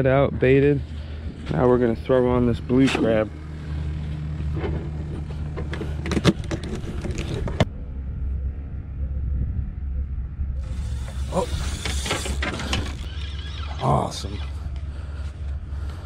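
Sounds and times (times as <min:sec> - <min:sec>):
low rumble: 0:00.3 - 0:13.6.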